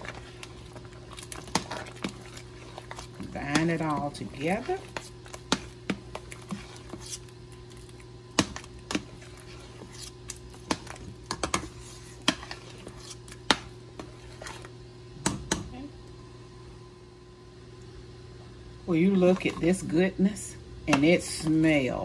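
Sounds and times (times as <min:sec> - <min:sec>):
metal spoon scraping a pot: 0:00.0 - 0:07.4, 0:08.9 - 0:14.7
steady low hum: 0:00.0 - 0:22.0.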